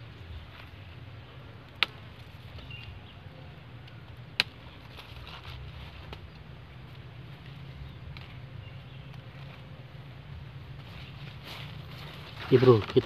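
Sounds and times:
low outdoor background: 0.0 - 13.0
garden scissors snipping: 3.8 - 6.4.

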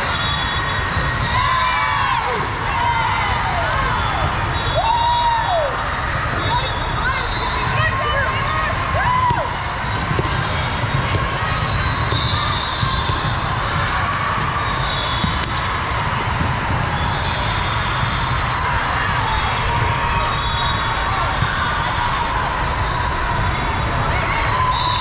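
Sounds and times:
hubbub of players and spectators: 0.0 - 25.0
volleyballs hit and bouncing: 8.7 - 20.2.

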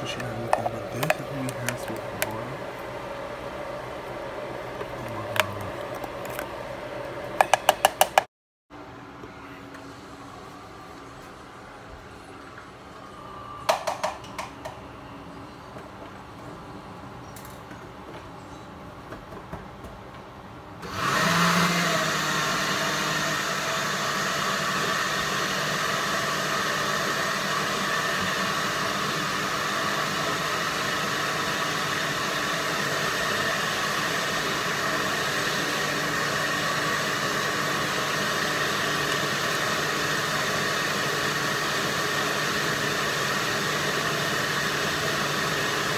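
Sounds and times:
blender running: 0.0 - 3.0, 4.7 - 6.5, 20.8 - 45.9.

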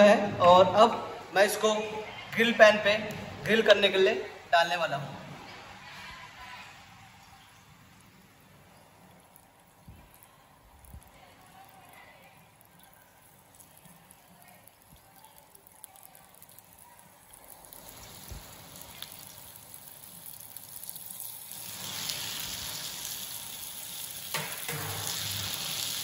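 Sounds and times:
fish sizzling on a grill pan: 10.8 - 26.0.

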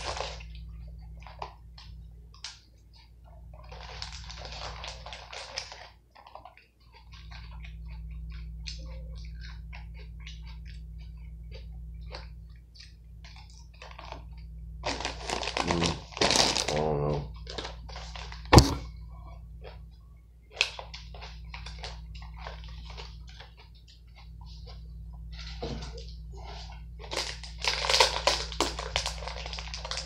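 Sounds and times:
plastic pouch crinkling: 0.0 - 0.5, 3.6 - 6.6, 13.3 - 18.6, 27.0 - 30.0
steady low hum: 0.0 - 30.0
chewing: 0.1 - 15.0, 19.2 - 30.0
sharp thunk: 18.5 - 18.8.

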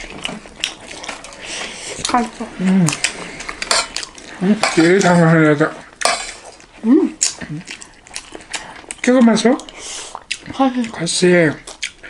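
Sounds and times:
person's wavering vocal sound: 2.4 - 3.0, 6.8 - 7.7.

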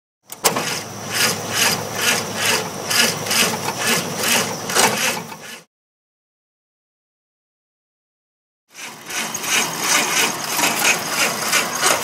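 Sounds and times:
jeep engine pulsing rasp: 0.4 - 5.7, 8.7 - 12.0.

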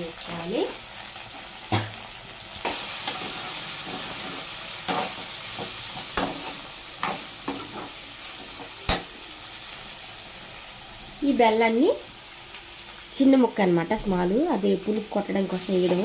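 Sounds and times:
food frying in oil: 0.0 - 16.0
spatula knocking and scraping pan: 2.7 - 9.1.

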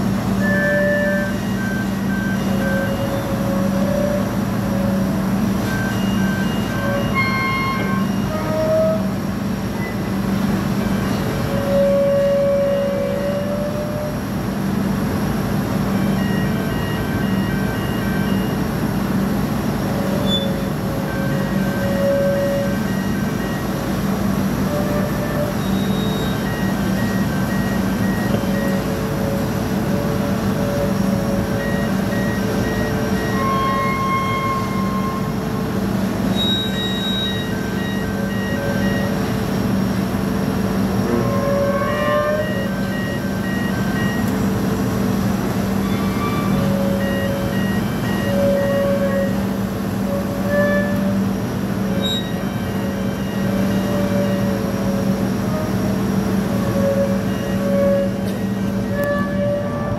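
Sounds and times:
heavy diesel engine hum: 0.0 - 59.9
metallic squeals: 0.4 - 10.2, 10.8 - 14.3, 19.9 - 39.3, 41.0 - 44.5, 45.7 - 59.9
high warning alarm beeps: 0.6 - 9.2, 16.0 - 19.2, 19.9 - 39.9, 41.0 - 45.3, 45.9 - 59.9.

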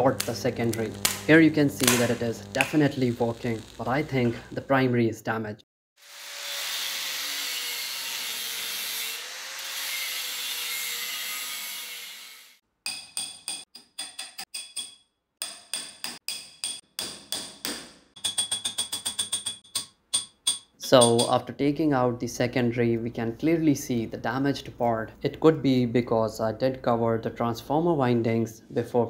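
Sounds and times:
steady hiss: 0.0 - 4.9
steel rod hammering metal core: 12.9 - 21.4.

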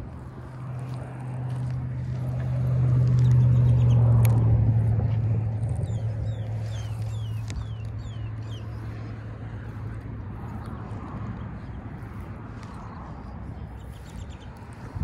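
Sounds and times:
low rumble: 0.0 - 15.0
bird chirping: 5.8 - 8.9.

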